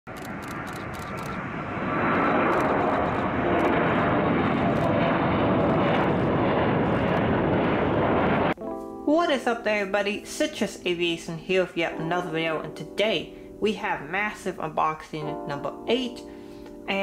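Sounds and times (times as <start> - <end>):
airplane engine noise: 0.1 - 8.6.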